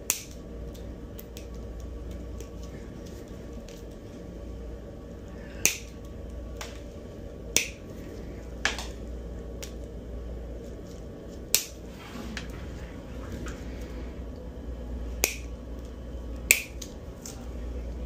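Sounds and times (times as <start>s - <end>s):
nail nippers snapping: 0.0s - 0.4s, 5.6s - 6.0s, 7.5s - 7.8s, 11.5s - 11.8s, 15.2s - 15.5s, 16.5s - 17.0s
steady low hum: 0.0s - 18.0s.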